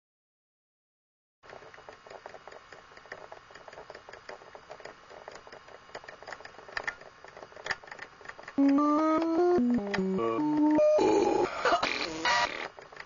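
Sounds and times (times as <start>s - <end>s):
rapid mechanical clicking: 1.4s - 10.8s, 12.4s - 13.0s
electronic melody: 8.6s - 12.5s.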